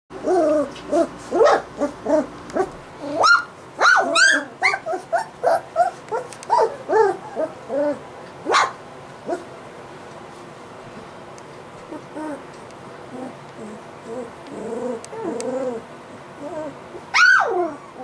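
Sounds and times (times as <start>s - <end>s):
puppy yelp: 0.2s - 9.4s, 16.4s - 18.0s
puppies yipping and whimpering: 0.2s - 9.5s, 11.9s - 12.5s, 13.1s - 18.0s.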